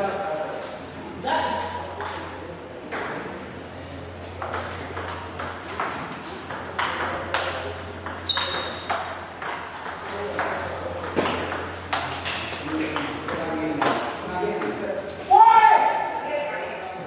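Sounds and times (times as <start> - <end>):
high squeaks: 5.9 - 6.8, 8.1 - 8.9, 15.0 - 15.5.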